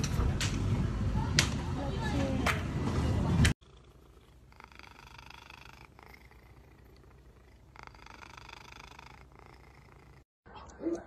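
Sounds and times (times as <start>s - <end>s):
cat purring: 3.6s - 10.3s.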